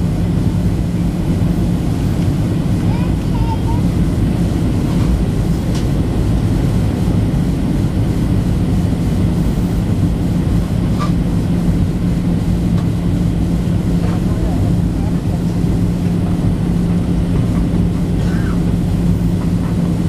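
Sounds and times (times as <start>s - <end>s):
jet engines running: 0.0s - 20.0s
steady low drone: 0.0s - 20.0s.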